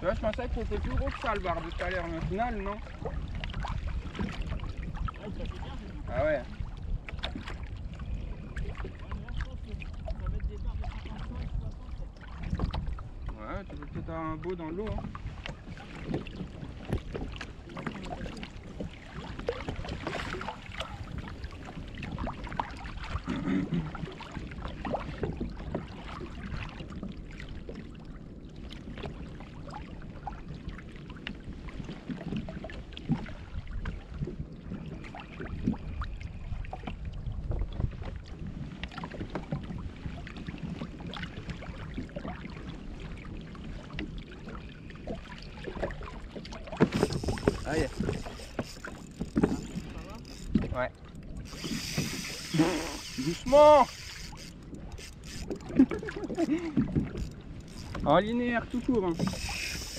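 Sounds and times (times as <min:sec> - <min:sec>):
water lapping against kayak hull: 0:00.0 - 0:59.9
wind on microphone: 0:00.0 - 0:59.9
small knocks on hull: 0:14.8 - 0:24.1, 0:45.0 - 0:50.9, 0:55.3 - 0:58.1.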